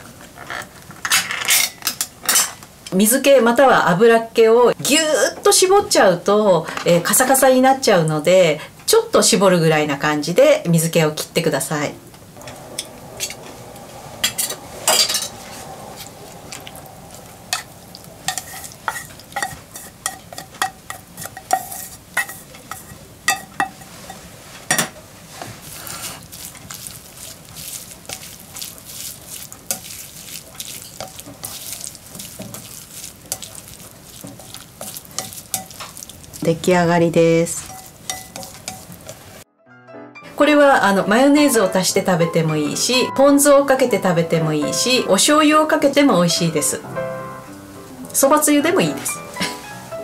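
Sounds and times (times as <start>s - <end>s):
wet mixing in a glass bowl: 16.0s - 22.8s, 25.6s - 36.7s, 37.4s - 39.2s.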